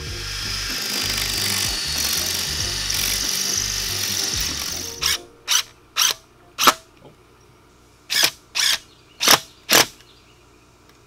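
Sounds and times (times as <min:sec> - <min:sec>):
cordless drill driving a screw: 0:00.0 - 0:06.2, 0:08.1 - 0:09.9.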